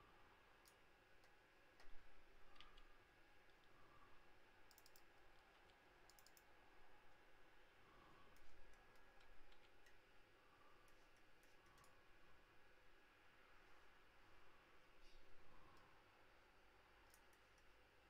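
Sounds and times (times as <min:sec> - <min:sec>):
computer mouse clicking: 0:00.6 - 0:03.8, 0:04.6 - 0:06.6, 0:08.3 - 0:10.1, 0:10.8 - 0:12.0, 0:17.0 - 0:17.8.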